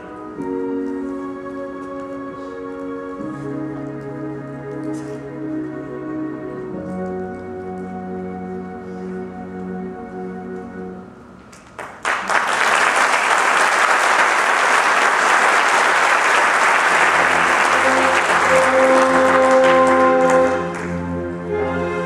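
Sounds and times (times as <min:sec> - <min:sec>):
audience applauding: 0:11.6 - 0:21.2
orchestra playing: 0:15.4 - 0:22.0.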